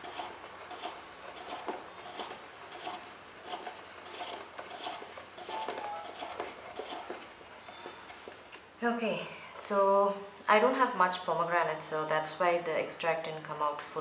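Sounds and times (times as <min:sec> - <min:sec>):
hand-crank juicer grinding: 0:00.0 - 0:08.7.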